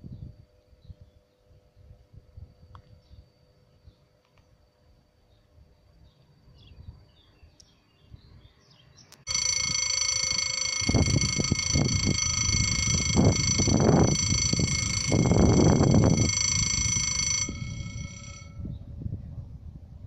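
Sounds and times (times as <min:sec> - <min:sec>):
level-crossing warning bell: 0:09.3 - 0:18.7.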